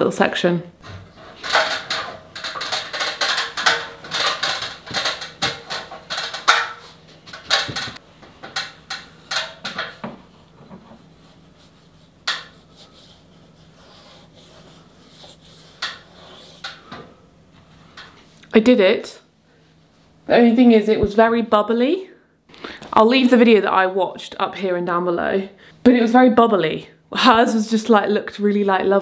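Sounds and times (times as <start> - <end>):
hard objects clattering: 0.9 - 11.0.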